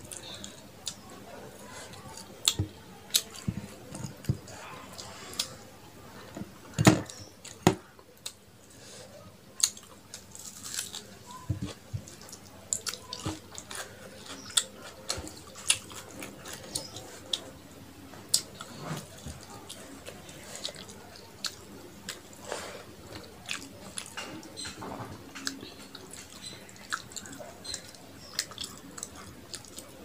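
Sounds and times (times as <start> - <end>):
mouth clicks and chewing: 9.6 - 17.5, 25.4 - 30.0.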